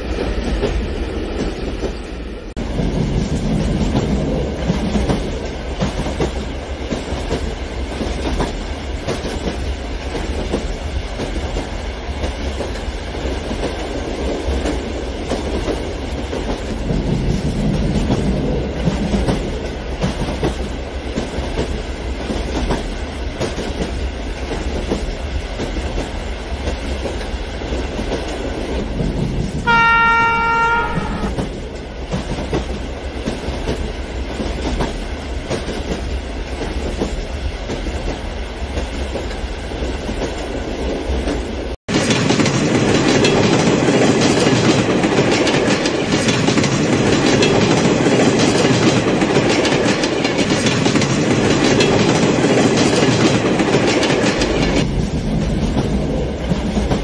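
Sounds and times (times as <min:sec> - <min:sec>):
train horn blast: 0:29.6 - 0:31.5.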